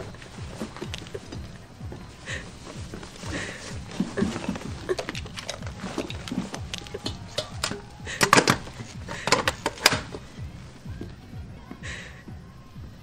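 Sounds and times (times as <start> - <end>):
metallic clicks and clatter: 4.4 - 10.2.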